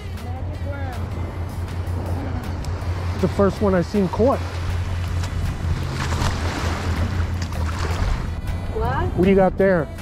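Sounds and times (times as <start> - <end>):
small waves washing on beach: 2.0 - 8.4.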